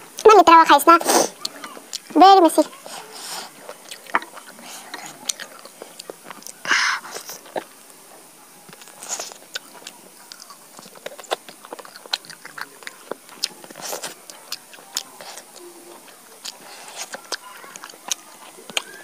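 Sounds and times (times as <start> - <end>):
mouth chewing: 1.0 - 8.0, 8.6 - 19.0
fingers tearing chicken meat: 8.7 - 19.0.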